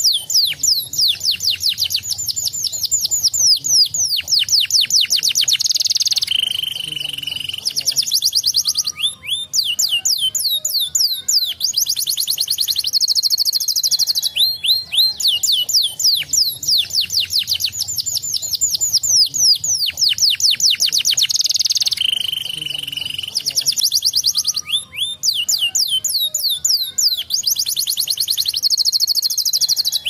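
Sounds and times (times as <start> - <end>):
canary singing: 0.0 - 30.0.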